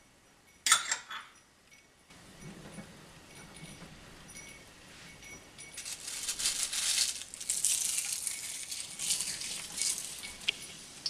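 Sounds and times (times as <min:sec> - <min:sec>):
leaves spluttering in hot oil: 0:05.8 - 0:10.8.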